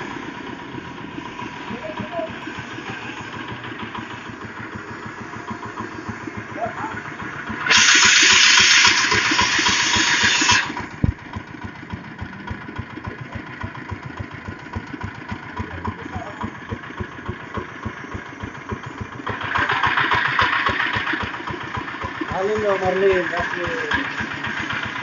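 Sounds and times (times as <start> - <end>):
diesel engine chugging: 0.0 - 25.0
loud hiss: 7.5 - 11.1.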